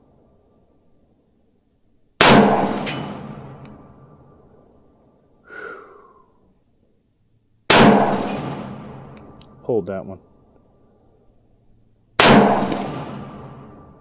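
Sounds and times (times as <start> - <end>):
rifle shots with rolling echo: 2.2 - 5.2, 7.7 - 9.6, 12.1 - 14.0.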